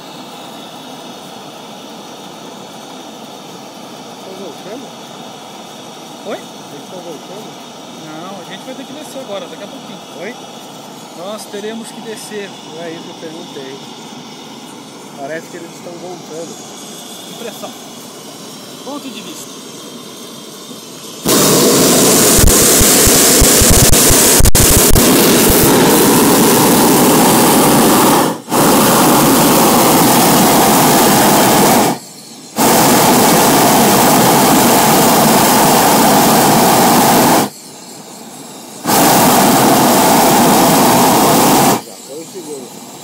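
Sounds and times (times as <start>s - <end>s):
propane burner roaring: 0.0s - 43.0s.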